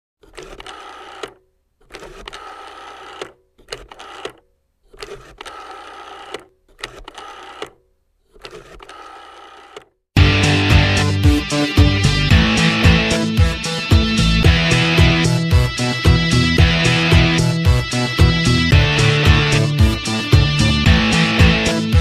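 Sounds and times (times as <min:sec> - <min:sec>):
intro sound effect bursts: 0:10.2 - 0:22.0
loud rock music with electric guitar: 0:10.2 - 0:22.0.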